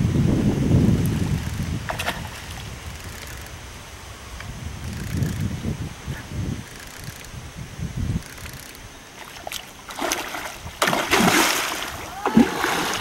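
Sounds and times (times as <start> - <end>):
fish splashing in water: 9.2 - 13.0.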